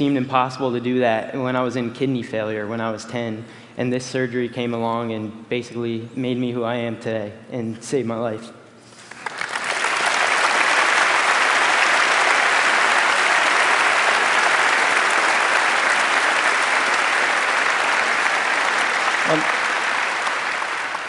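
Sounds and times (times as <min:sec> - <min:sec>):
audience applauding: 0:09.0 - 0:21.0.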